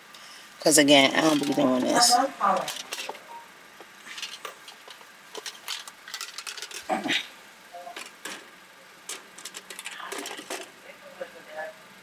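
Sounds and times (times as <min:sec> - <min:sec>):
small items clicking and rustling: 0:01.2 - 0:01.9, 0:02.5 - 0:03.2, 0:04.0 - 0:06.9, 0:09.1 - 0:10.8.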